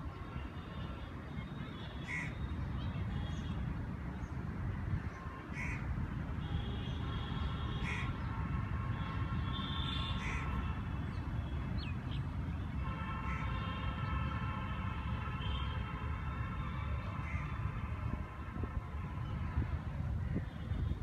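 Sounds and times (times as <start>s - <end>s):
crows cawing: 2.0s - 2.4s, 5.5s - 5.8s, 7.8s - 8.2s, 10.2s - 10.6s, 17.2s - 17.5s.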